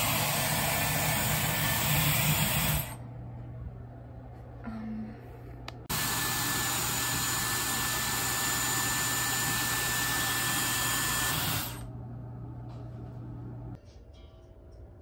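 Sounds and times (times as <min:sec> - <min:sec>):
hair styler blowing air: 0:00.0 - 0:03.0, 0:05.9 - 0:11.9.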